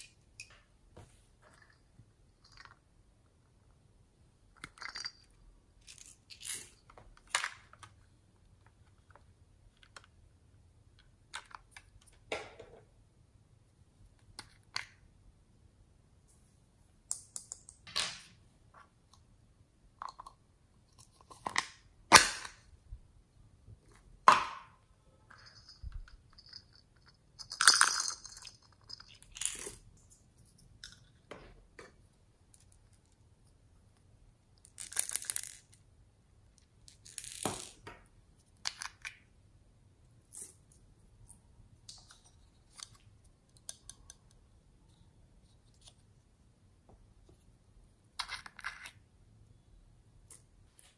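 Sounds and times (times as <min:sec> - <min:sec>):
plastic toys clicking and tapping: 0:41.8 - 0:44.4.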